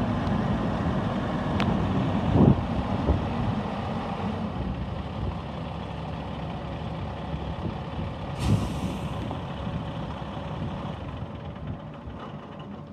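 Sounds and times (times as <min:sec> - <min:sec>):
diesel truck engine running: 0:00.0 - 0:12.9
air brake hiss: 0:08.4 - 0:09.3.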